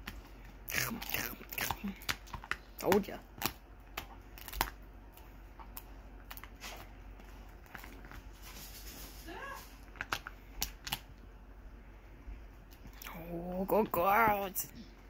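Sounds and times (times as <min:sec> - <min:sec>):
dog crunching and gnawing: 0:00.0 - 0:09.0, 0:09.8 - 0:11.2.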